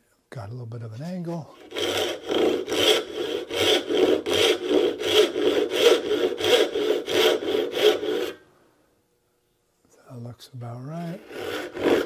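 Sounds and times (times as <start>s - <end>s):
backsaw cutting wood: 1.6s - 8.4s, 11.1s - 12.0s.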